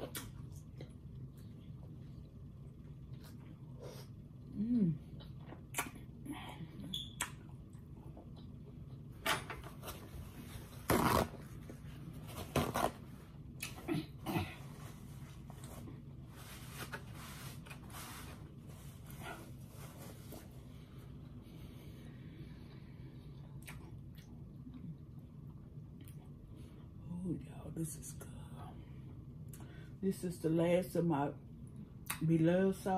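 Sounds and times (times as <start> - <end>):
person humming: 4.5 - 5.0
chewing and mouth noises: 23.5 - 26.4.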